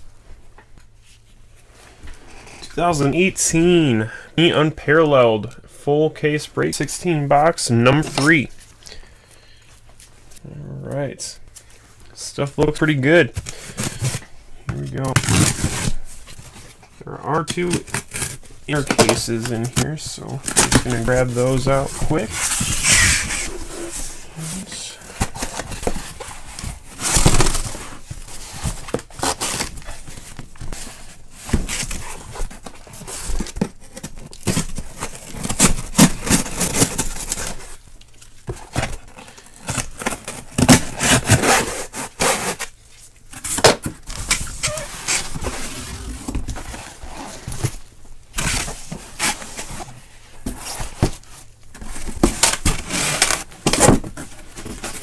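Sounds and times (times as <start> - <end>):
cardboard scraping and sliding: 17.9 - 29.7, 44.2 - 55.0.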